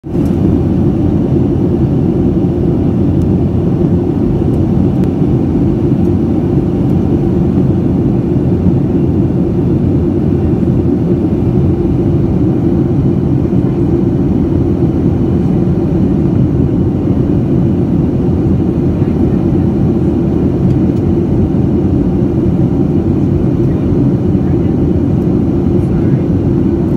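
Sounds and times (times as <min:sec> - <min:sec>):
jet cabin engine and airflow rush: 0:00.0 - 0:26.9.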